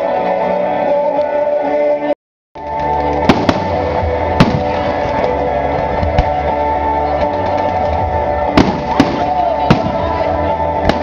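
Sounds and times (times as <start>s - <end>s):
music: 0.0s - 11.0s
fireworks exploding: 3.1s - 5.4s, 8.6s - 10.2s, 10.8s - 11.0s.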